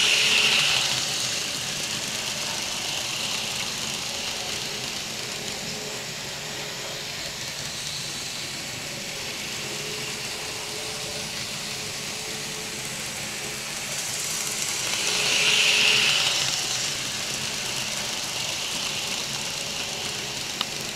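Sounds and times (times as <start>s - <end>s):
model train running: 0.0s - 20.9s.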